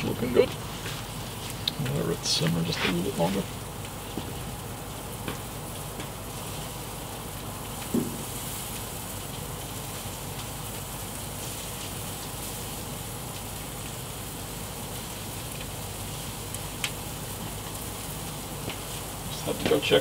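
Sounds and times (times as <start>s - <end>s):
food sizzling in grill: 0.0s - 20.0s
low thump: 7.9s - 8.2s.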